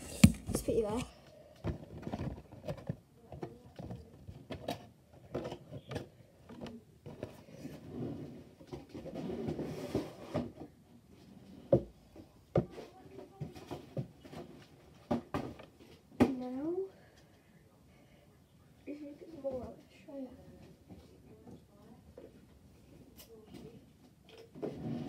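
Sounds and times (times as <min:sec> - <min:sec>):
rustling of things handled: 0:00.0 - 0:17.3.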